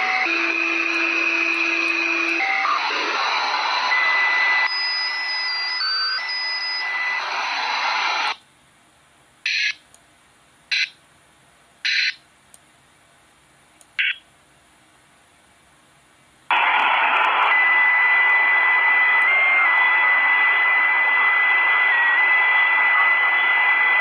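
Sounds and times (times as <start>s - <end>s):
radio static hiss: 0.0s - 8.4s, 16.5s - 24.0s
short bursts of static: 16.5s - 24.0s.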